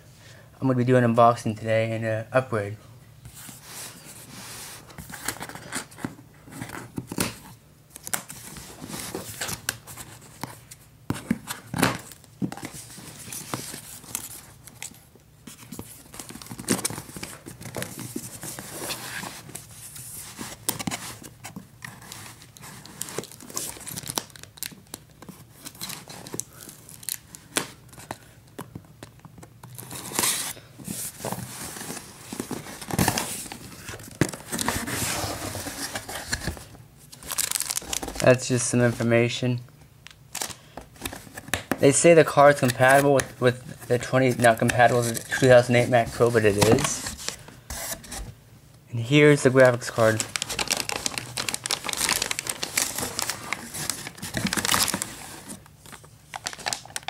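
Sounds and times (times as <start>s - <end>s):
cardboard scratching and crinkling: 29.7s - 38.4s, 41.0s - 48.3s, 49.6s - 57.0s
tape tearing: 50.0s - 55.6s.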